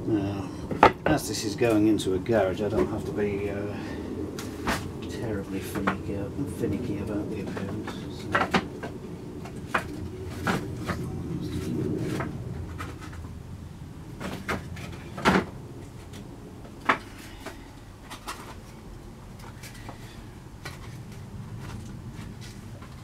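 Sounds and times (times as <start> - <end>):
wooden boards knocking and scraping: 0.7 - 1.2, 4.4 - 6.2, 6.8 - 13.4, 14.1 - 18.8.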